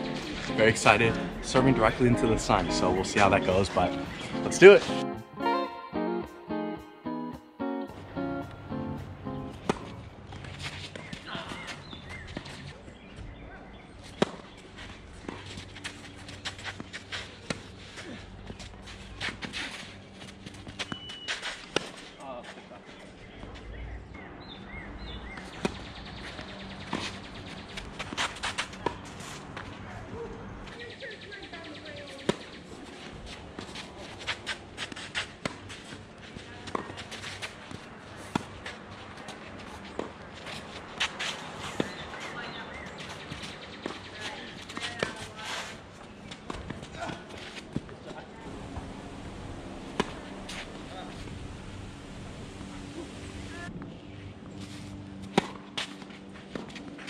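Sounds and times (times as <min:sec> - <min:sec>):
footsteps and shoe scuffs: 0:00.0 - 0:05.5, 0:07.9 - 0:13.4, 0:14.0 - 0:23.7, 0:25.5 - 0:29.8, 0:32.7 - 0:53.5, 0:54.4 - 0:57.0
tennis ball bouncing on court: 0:09.0 - 0:11.2, 0:14.2 - 0:14.5, 0:36.6 - 0:37.0, 0:48.5 - 0:53.5, 0:55.2 - 0:57.0
tennis ball hitting racket: 0:09.0 - 0:12.6, 0:14.2 - 0:14.5, 0:33.5 - 0:35.9, 0:36.6 - 0:38.7, 0:48.5 - 0:53.6, 0:55.2 - 0:57.0.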